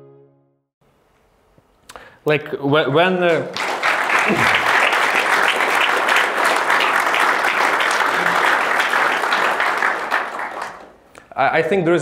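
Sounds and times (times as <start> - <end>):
audience clapping: 3.0 - 11.1.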